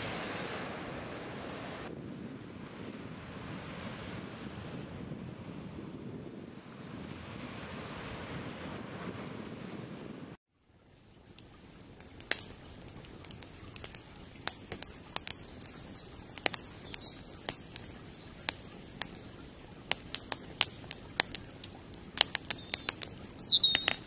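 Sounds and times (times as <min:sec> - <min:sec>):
soft steady hiss: 0:10.6 - 0:24.0
sharp crackling clicks: 0:11.2 - 0:24.0
birds chirping: 0:11.4 - 0:24.0.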